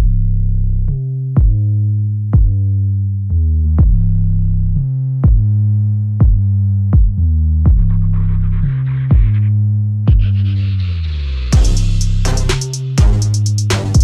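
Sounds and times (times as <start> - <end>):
deep synthesizer bass notes: 0.0 - 14.0
drum-machine beat: 1.3 - 1.7, 2.4 - 2.6, 3.8 - 4.2, 5.2 - 10.6, 11.5 - 14.0.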